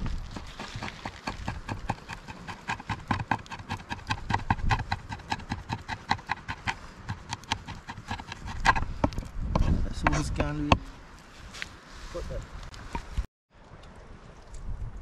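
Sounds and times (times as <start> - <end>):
knife chopping on wooden board: 0.3 - 10.9.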